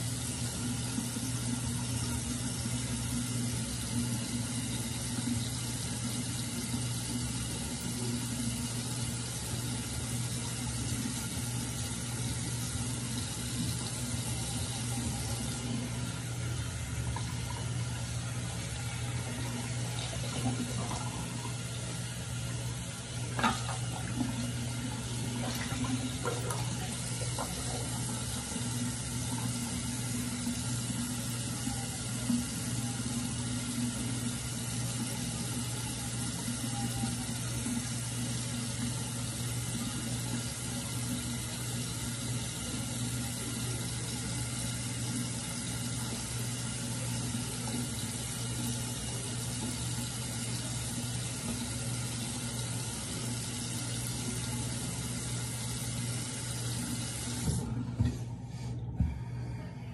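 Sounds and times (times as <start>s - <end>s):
tap running into sink: 23.3s - 28.2s, 57.2s - 58.2s.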